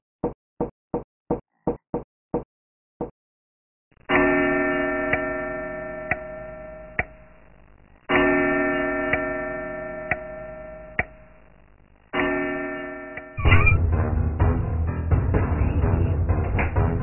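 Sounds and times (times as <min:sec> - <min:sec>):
pendulum clock ticking: 0:10.0 - 0:11.3.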